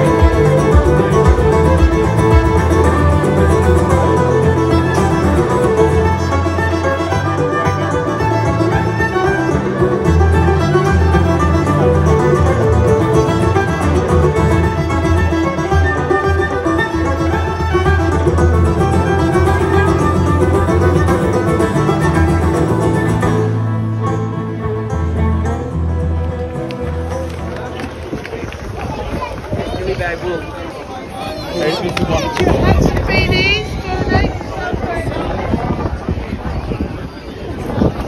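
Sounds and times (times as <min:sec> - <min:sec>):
fiddle-led string-band music: 0:00.0 - 0:38.0.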